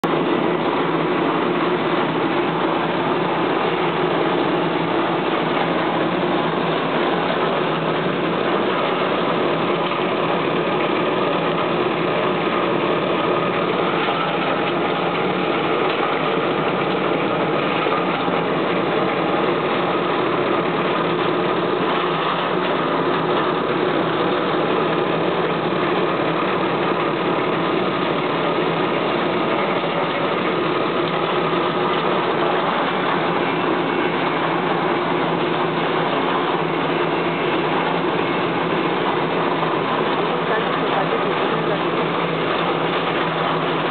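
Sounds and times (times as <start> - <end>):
dehuller machine running: 0.0 - 43.9.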